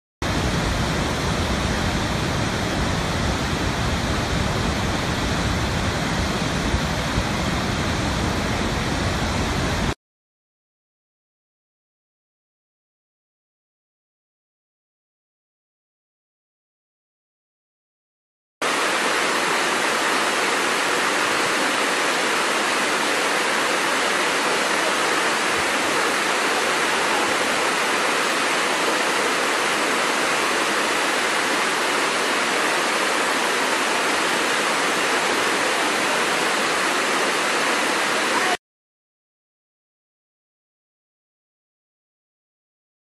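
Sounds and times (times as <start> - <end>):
waterfall rushing: 0.2 - 10.0, 18.6 - 38.6.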